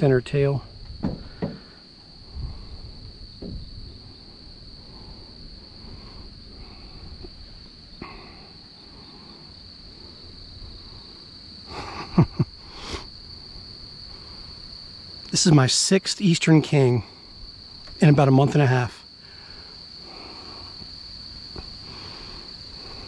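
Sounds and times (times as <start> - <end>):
insects droning: 0.0 - 23.0
handling thuds: 0.9 - 1.8, 3.4 - 3.9.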